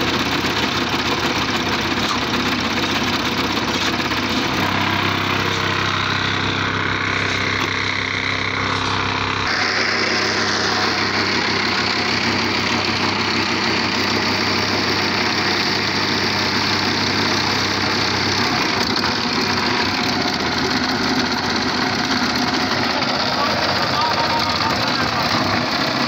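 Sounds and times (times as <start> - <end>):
concrete machinery droning: 0.0 - 26.0
low hum: 4.3 - 13.8.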